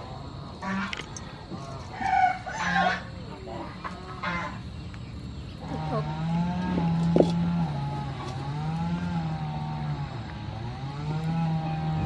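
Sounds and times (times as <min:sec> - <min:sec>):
engine running: 0:03.3 - 0:12.0.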